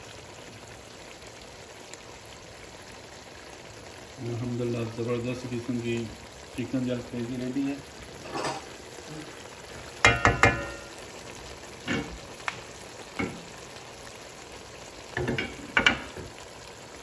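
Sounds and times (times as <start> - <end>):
curry sizzling in a wok: 0.0 - 17.0
sharp pops and clicks: 12.4 - 13.3.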